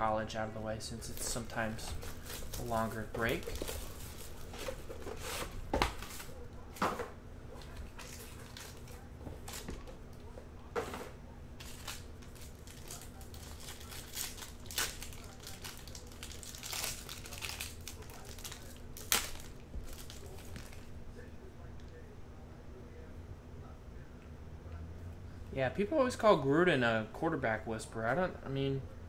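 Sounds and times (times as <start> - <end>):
foil wrappers crinkling and tearing: 1.0 - 6.4, 7.6 - 9.8, 11.6 - 20.9.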